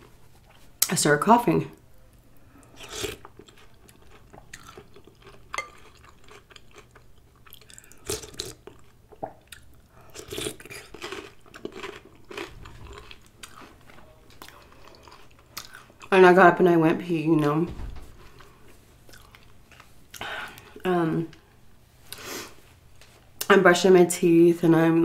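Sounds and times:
person eating soup: 2.6 - 16.1, 18.3 - 20.8.

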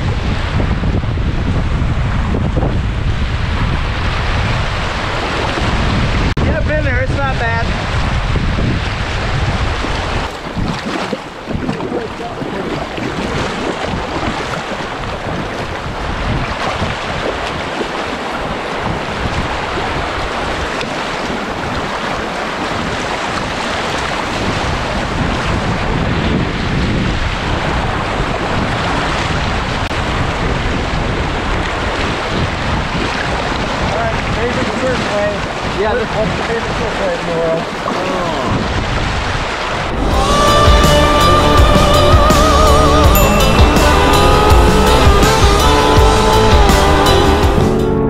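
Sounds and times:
wind buffeting microphone: 0.0 - 42.4
river water rushing: 8.9 - 25.6, 27.3 - 47.7.

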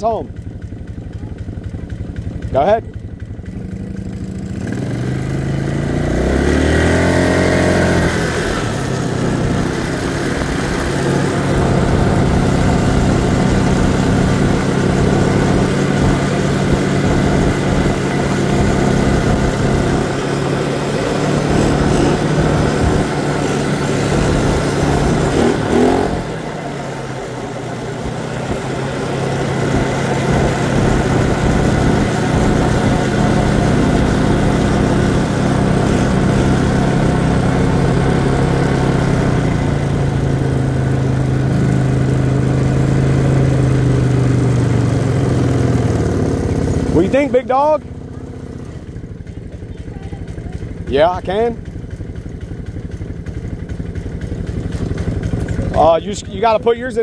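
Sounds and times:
atv engine running: 0.0 - 57.0.

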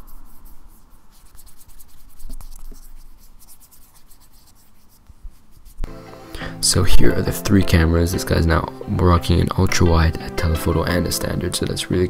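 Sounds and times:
fingertips rubbing on glass: 0.0 - 5.9.

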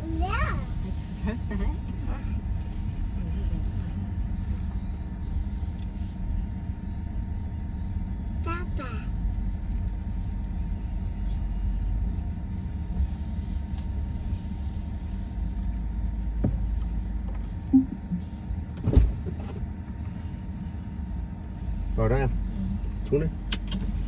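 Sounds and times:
car engine and road rumble: 0.0 - 24.0
thump in car: 16.4 - 16.7, 18.8 - 19.6.

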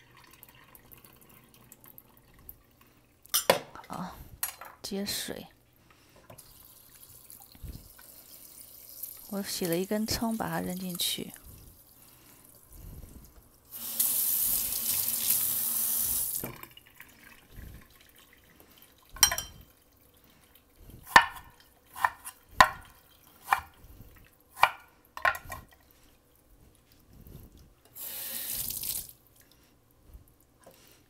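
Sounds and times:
faucet running water into pot: 6.4 - 11.3, 13.7 - 19.9, 28.0 - 29.2.

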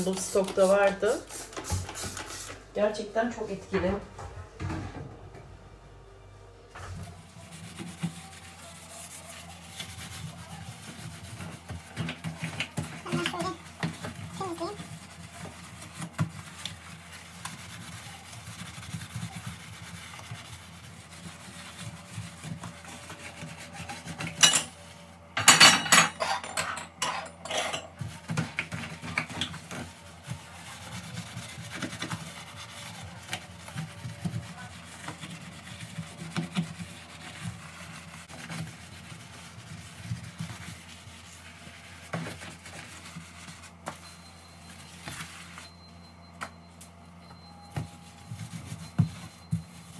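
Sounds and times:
cloth wiping glass hob: 6.8 - 25.1, 27.0 - 45.6.

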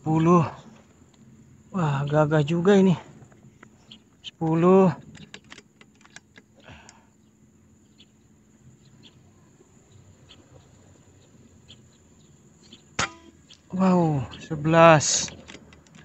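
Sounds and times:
faint ticks: 3.2 - 7.1
light clicks: 3.2 - 7.1, 15.0 - 16.0.

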